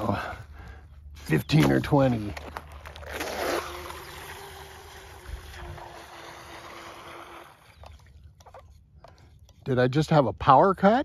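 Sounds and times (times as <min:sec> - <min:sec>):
electric boat motor whining: 0:02.8 - 0:08.6.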